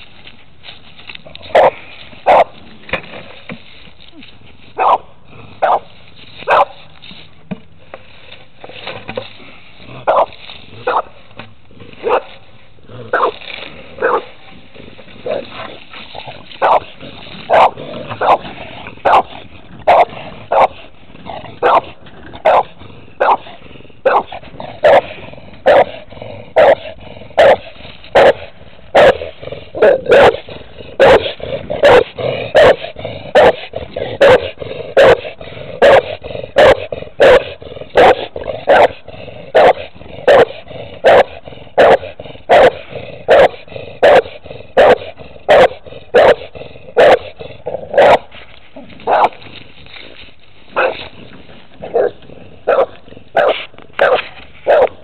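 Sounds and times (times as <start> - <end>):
dog barking: 1.5 - 2.5, 4.8 - 5.9, 6.5 - 6.8, 10.1 - 11.1, 12.0 - 12.3, 13.1 - 13.4, 14.0 - 14.3, 16.6 - 16.9, 17.5 - 18.4, 19.0 - 19.3, 19.9 - 20.8, 21.6 - 25.1, 25.7 - 25.9, 26.6 - 26.8, 27.4 - 27.6, 28.2 - 28.4, 29.0 - 29.2, 29.8 - 30.4, 31.0 - 32.8, 33.4 - 33.6, 34.2 - 35.2, 35.8 - 39.0, 39.6 - 46.4, 47.0 - 47.2, 47.9 - 48.3, 49.1 - 49.4, 50.8 - 51.0, 51.9 - 55.0.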